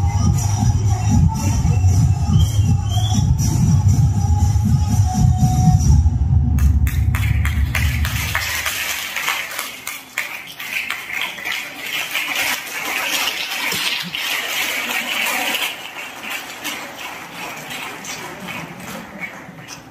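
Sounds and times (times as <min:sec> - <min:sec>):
dance music: 0:00.0 - 0:09.0
audience applause: 0:06.6 - 0:11.6, 0:13.8 - 0:19.6.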